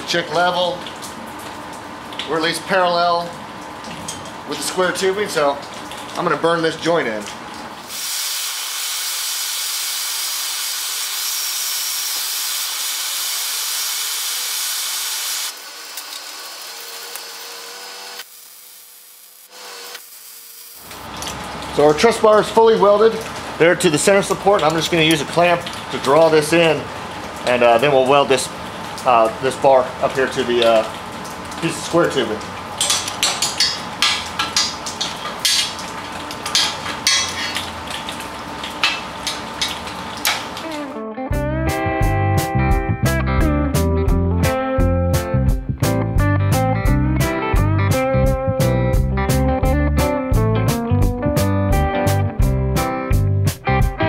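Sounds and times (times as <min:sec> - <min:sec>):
welding arc crackling hiss: 0:07.8 - 0:22.1.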